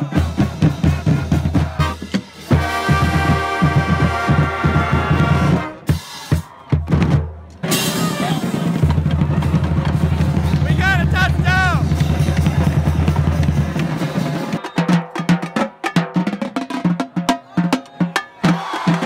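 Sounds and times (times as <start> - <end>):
drumline bass drums and snares: 0.0 - 19.0
brass held chord: 2.5 - 5.8.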